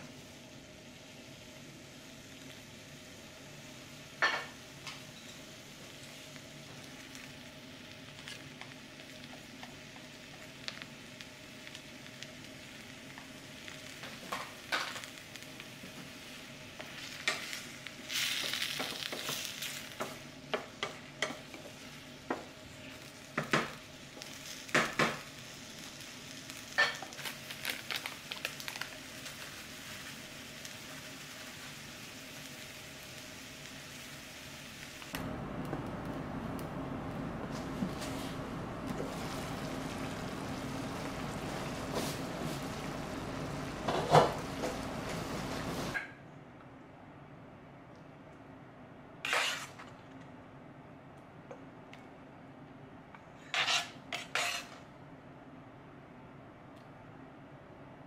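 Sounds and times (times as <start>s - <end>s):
vegetables sizzling in a pan: 0.0s - 46.0s
wooden spatula scraping a pan: 49.3s - 49.9s, 53.4s - 54.8s.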